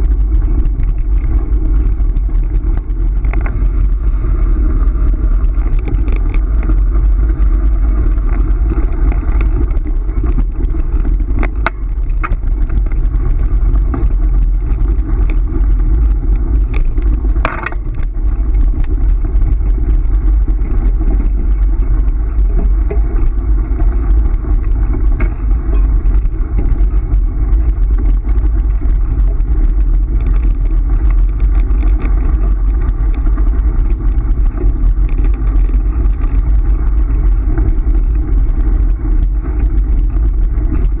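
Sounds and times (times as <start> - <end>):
wheels rolling over gravel: 0.0 - 41.0.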